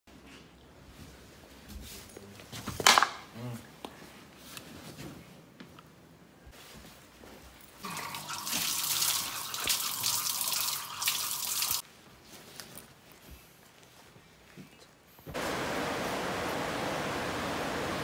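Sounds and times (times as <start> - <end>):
water running from a tap: 7.8 - 11.8.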